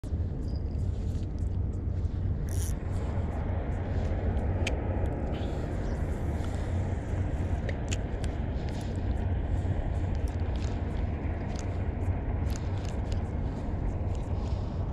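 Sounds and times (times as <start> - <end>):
low rumble: 0.0 - 14.9
fishing reel clicks: 2.5 - 2.8.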